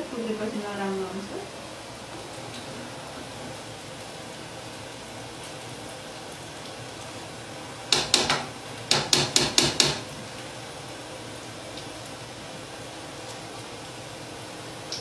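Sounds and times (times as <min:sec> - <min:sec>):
ladle knocking on metal pan: 0:07.9 - 0:10.0.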